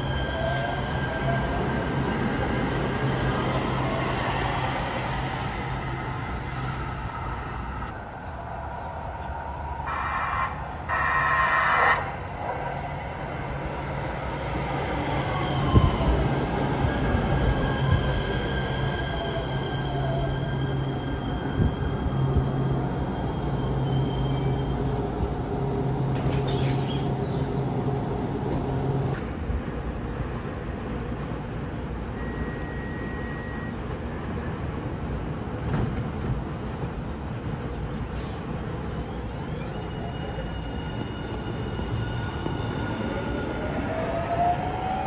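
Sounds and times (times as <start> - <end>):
train braking: 0.0 - 8.0, 9.7 - 29.3, 31.6 - 37.0, 38.0 - 45.0
train horn blasts: 9.8 - 12.2.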